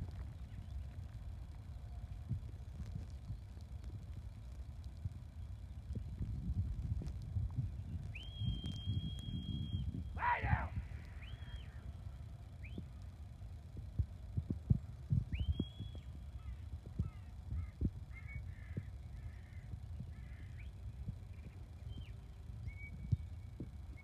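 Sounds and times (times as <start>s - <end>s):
short chirping whistles: 8.1s - 11.8s, 15.3s - 16.1s
shepherd's whistles: 8.2s - 9.9s.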